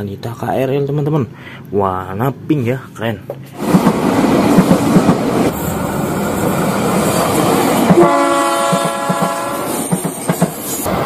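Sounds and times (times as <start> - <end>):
train wheels clacking on rails: 3.6 - 11.0
train horn: 7.9 - 9.8.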